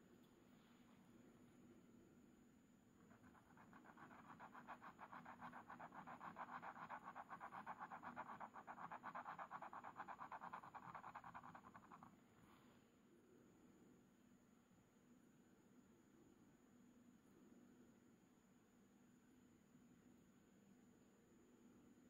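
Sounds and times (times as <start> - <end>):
pen nib scratching on paper: 3.0 - 12.2.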